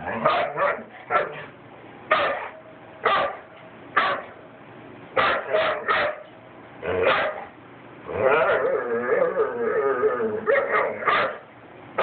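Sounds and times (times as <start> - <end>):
dog barking: 0.2 - 1.4, 2.1 - 4.4, 5.2 - 6.3, 7.0 - 7.5, 10.5 - 11.4.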